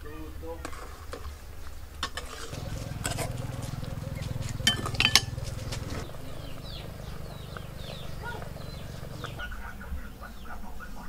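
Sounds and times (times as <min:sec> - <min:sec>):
steady low hum: 0:02.5 - 0:10.3
utensils clinking on metal pot: 0:04.5 - 0:06.0.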